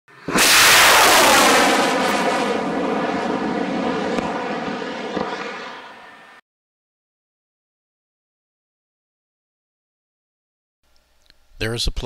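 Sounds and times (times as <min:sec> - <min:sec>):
rocket motor roaring at lift-off: 0:00.1 - 0:06.4.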